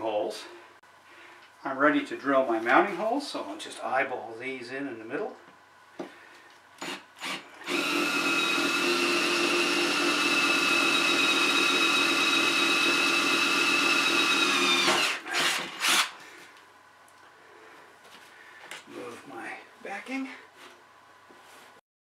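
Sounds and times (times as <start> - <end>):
cordless drill boring through metal: 6.8 - 16.2.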